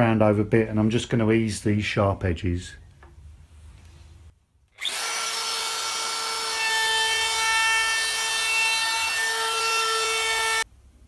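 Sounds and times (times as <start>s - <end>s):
router motor high whine: 4.8s - 7.4s
router bit rasping through wood: 4.8s - 10.6s.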